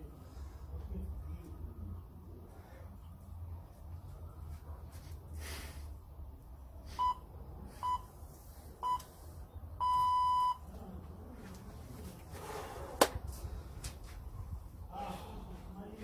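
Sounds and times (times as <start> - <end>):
timer beeps: 9.8 - 10.6.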